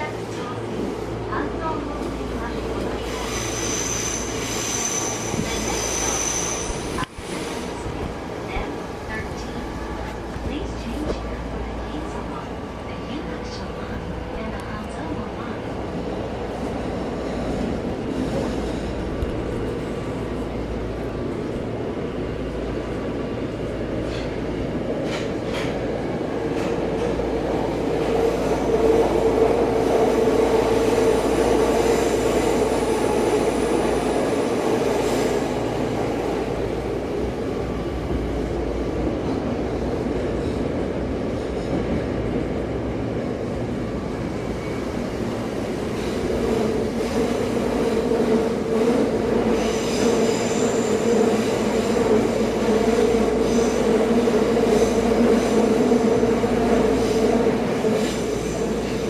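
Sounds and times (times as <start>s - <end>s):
electric train droning hum: 0.0s - 59.0s
faint high wheel squeal: 3.4s - 6.8s
rolling train wheels: 23.4s - 59.0s.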